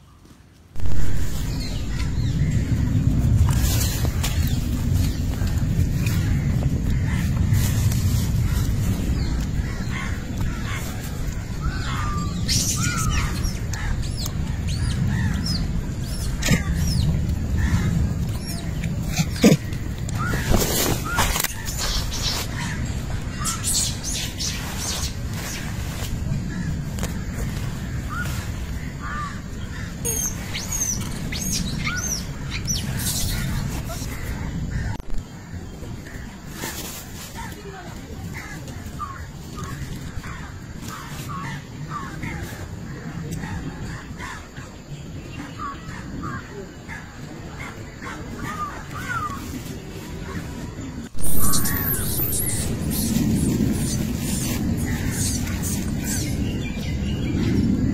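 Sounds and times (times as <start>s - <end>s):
birds calling: 0.0s - 57.9s
low rumble: 0.7s - 36.4s, 49.3s - 57.9s
crows cawing: 28.8s - 30.4s.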